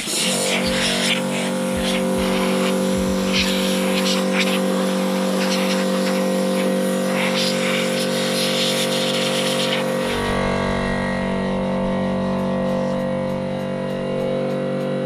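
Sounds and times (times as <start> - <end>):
spray gun hissing: 0.0 - 10.2
air compressor humming: 0.0 - 15.0
low rumble: 0.7 - 4.0, 10.0 - 14.5.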